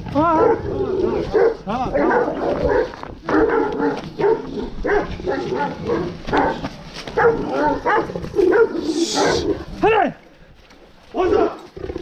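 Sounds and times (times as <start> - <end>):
dogs barking and yelping: 0.2 - 9.8.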